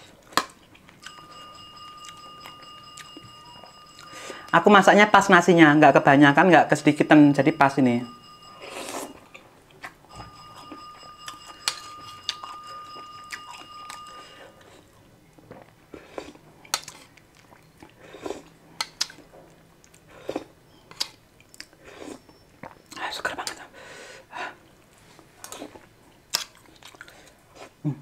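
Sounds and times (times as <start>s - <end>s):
chewing: 8.8s - 23.6s, 25.4s - 27.8s
faint high tone: 10.1s - 14.7s.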